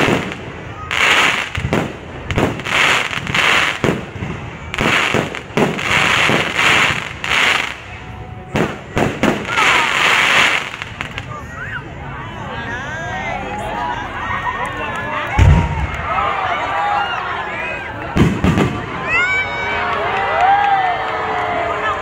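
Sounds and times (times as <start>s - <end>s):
fireworks bangs: 0.0s - 11.5s, 15.3s - 16.1s, 18.0s - 19.4s
fireworks hissing bursts: 0.0s - 11.6s.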